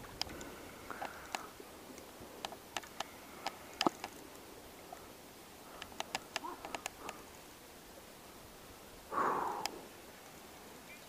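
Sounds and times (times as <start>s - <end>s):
light clicks and ticks: 0.0s - 4.4s, 5.7s - 7.3s.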